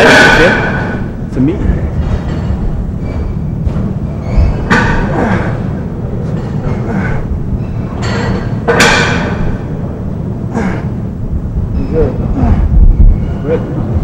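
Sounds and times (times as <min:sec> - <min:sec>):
gym room rumble: 0:00.0 - 0:14.0
barbell thuds: 0:08.0 - 0:09.8.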